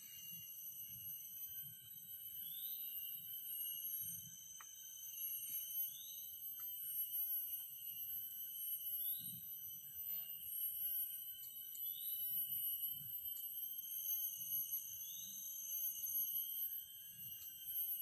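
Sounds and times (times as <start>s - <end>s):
short rising insect call: 0.0s - 9.9s, 13.8s - 18.0s
high-pitched insect drones: 0.0s - 18.0s.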